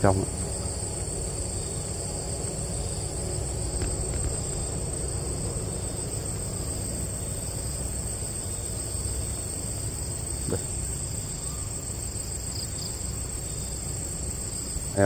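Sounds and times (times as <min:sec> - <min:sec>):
insects trilling: 0:00.0 - 0:15.0
low rumble: 0:03.1 - 0:06.7.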